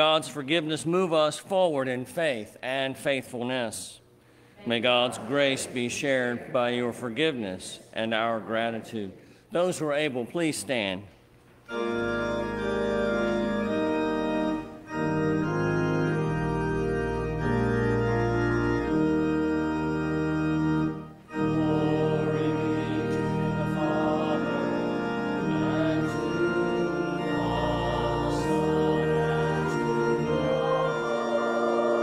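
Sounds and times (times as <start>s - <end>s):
church organ chords: 0.0s - 3.8s, 11.6s - 32.0s.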